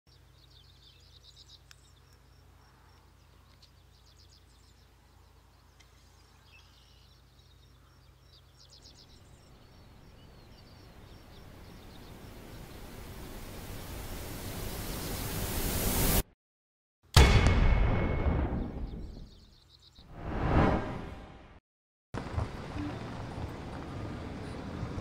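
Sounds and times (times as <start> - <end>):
small birds chirping: 0.1 - 15.7, 18.9 - 20.1.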